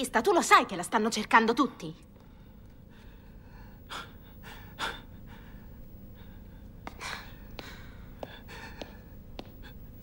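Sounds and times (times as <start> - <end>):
man breathing heavily: 2.8 - 10.0.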